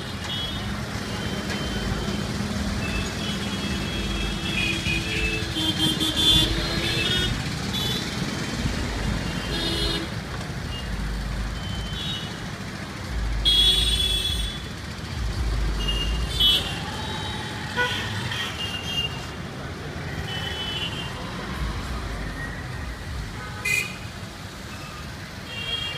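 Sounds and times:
car horns tooting: 0.0 - 8.2, 9.2 - 10.9
traffic engine rumble: 0.0 - 25.9.

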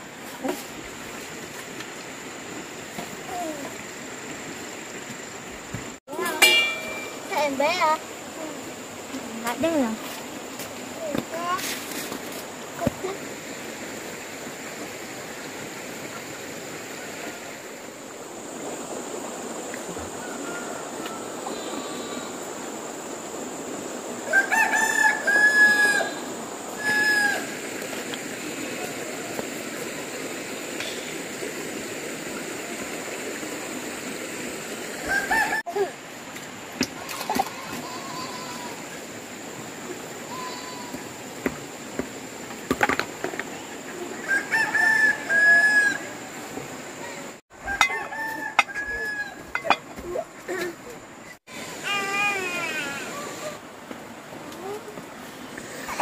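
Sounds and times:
running water hiss: 0.0 - 56.0
rooster crowing: 20.2 - 21.7, 24.2 - 27.6, 35.1 - 35.6, 44.2 - 46.2, 47.6 - 49.8.

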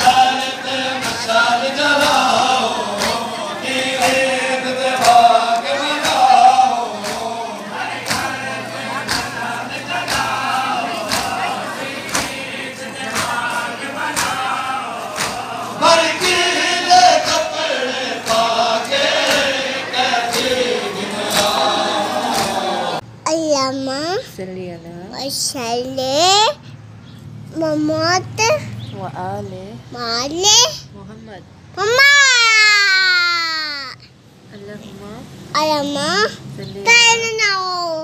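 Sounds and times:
men chanting together: 0.0 - 23.0
sharp rhythmic thumps: 0.0 - 23.0.

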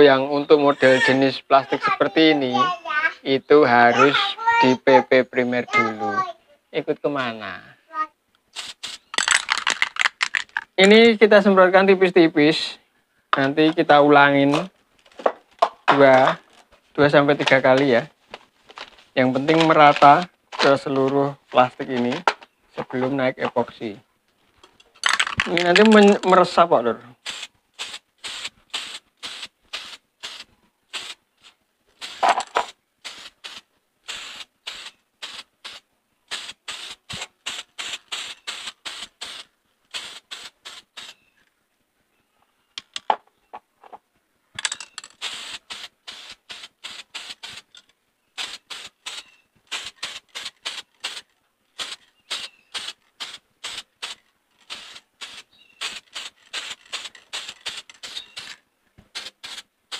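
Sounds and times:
aerosol can spraying: 8.5 - 9.2, 27.2 - 41.2, 45.2 - 47.7, 48.4 - 58.5, 59.1 - 59.7.

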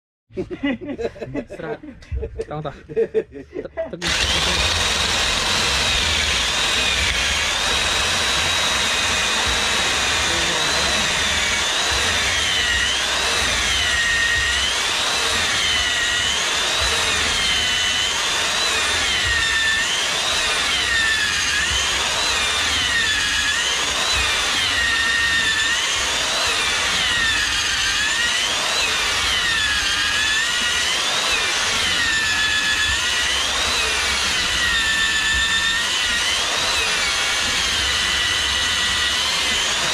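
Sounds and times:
drill bit rasping wood: 4.0 - 39.9
electric drill motor whine: 4.0 - 39.9.

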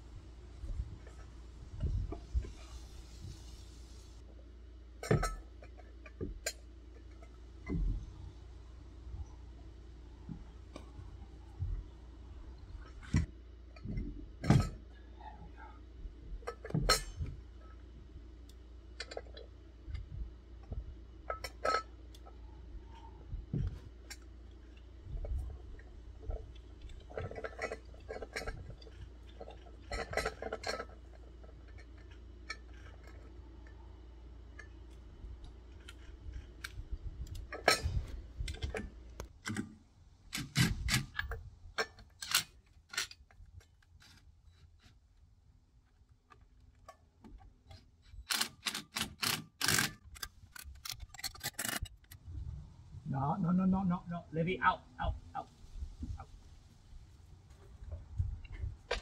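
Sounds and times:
low hum: 50.1 - 59.0.

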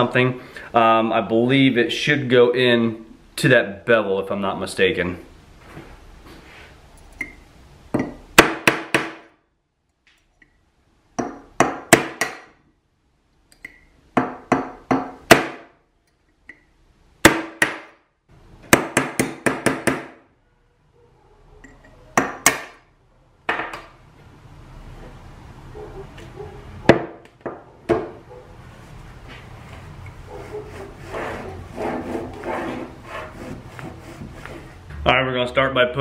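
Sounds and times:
hammer striking metal punch: 11.2 - 12.6, 17.2 - 18.0.

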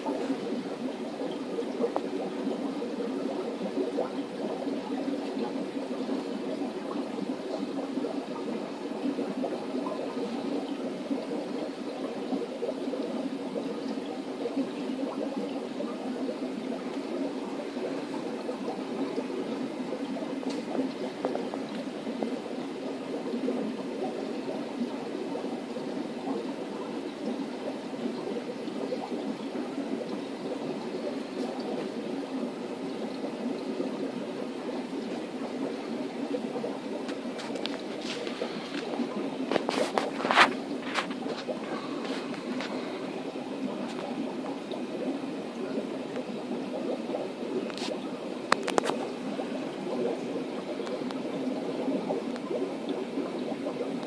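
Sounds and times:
aquarium water bubbling and trickling: 0.0 - 54.0.

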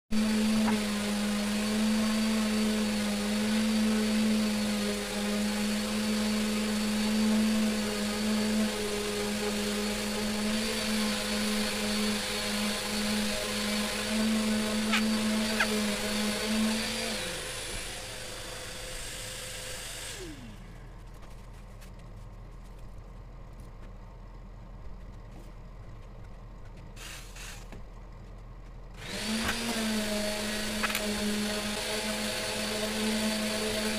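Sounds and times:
electric motor humming and whining: 0.1 - 21.6, 28.9 - 33.9.

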